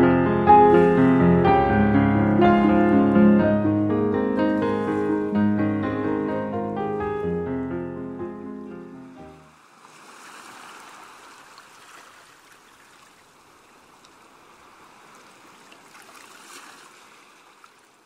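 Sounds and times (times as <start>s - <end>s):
ocean water washing: 0.4s - 7.0s, 9.2s - 18.0s.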